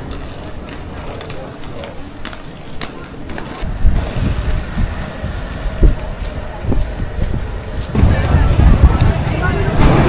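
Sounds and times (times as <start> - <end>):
low uneven rumble: 3.8 - 10.0.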